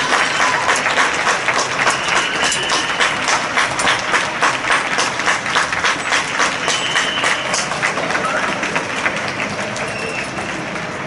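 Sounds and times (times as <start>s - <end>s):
crowd applause: 0.0s - 11.0s.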